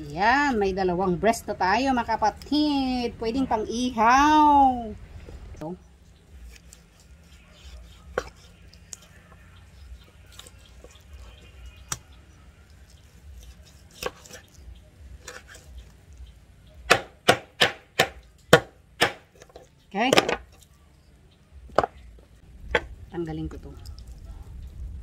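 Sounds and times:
knife chopping on wooden board: 0:07.6 - 0:08.5, 0:13.4 - 0:14.4, 0:16.9 - 0:20.4.

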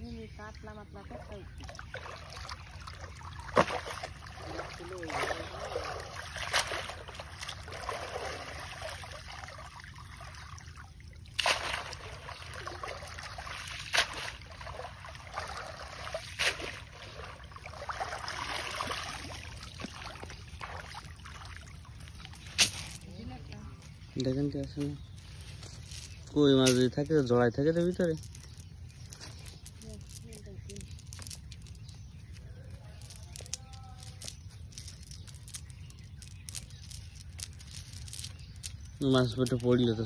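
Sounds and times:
water sloshing and trickling: 0:00.0 - 0:40.0
legs wading through water: 0:00.4 - 0:24.0
sharp splashes: 0:01.5 - 0:23.0.

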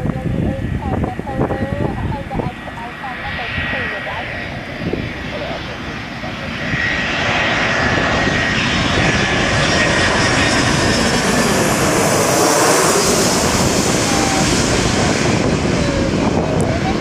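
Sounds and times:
jet airliner passing overhead: 0:00.0 - 0:17.0
thin high engine whine: 0:00.0 - 0:17.0.

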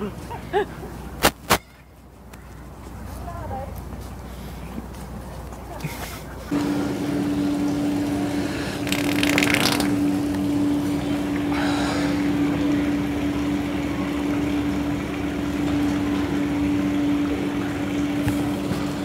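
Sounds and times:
machine hum: 0:06.5 - 0:19.0
crackly wet fart noise: 0:08.8 - 0:10.4.

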